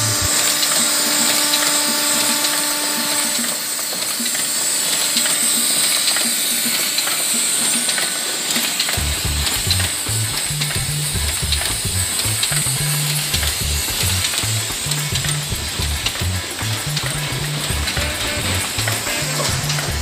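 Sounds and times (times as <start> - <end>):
steady multi-tone hum: 0.0 - 20.0
machine clatter with hiss: 0.3 - 20.0.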